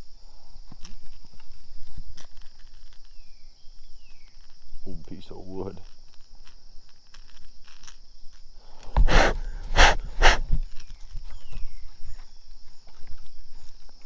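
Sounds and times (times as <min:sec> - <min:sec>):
short loud rushing noises: 0:09.0 - 0:10.6.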